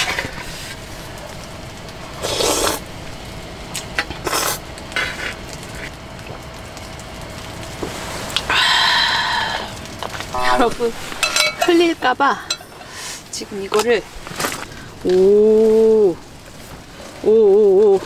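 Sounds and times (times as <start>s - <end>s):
slurping noodles: 2.2s - 2.8s
metal utensil clinking on tin: 11.2s - 11.9s.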